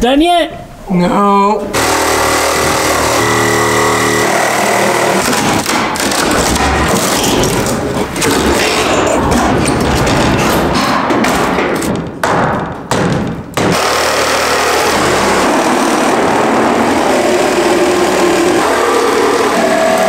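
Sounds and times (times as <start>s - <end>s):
power drill running: 1.7s - 5.4s, 13.7s - 20.0s
wooden boards cracking: 5.2s - 13.8s.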